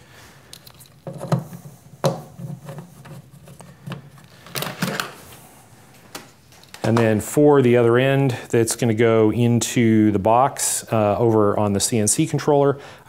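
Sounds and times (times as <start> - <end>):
cables rustling: 0.1 - 7.2
connectors knocking and clicking: 0.5 - 5.2.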